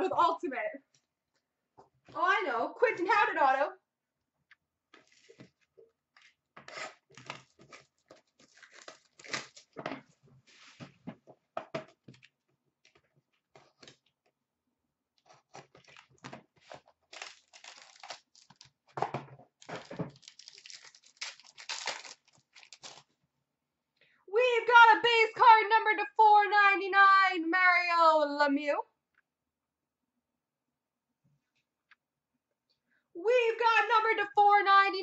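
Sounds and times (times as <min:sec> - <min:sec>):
packaging being torn open: 0:06.7 - 0:09.8, 0:17.1 - 0:18.8, 0:19.6 - 0:23.1.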